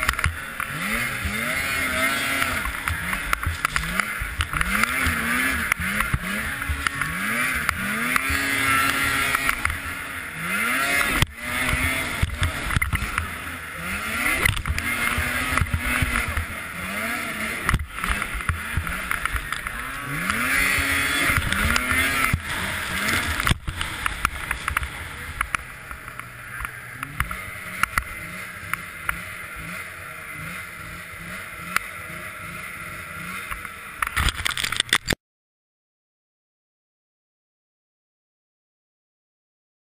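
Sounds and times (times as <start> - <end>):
snowmobile engine revving: 0.0 - 35.0.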